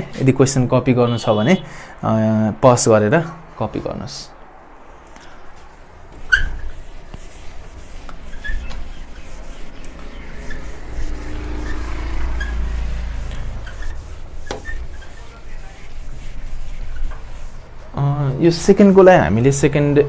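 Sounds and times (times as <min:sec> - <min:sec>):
eraser rubbing on whiteboard: 0:06.1 - 0:17.9.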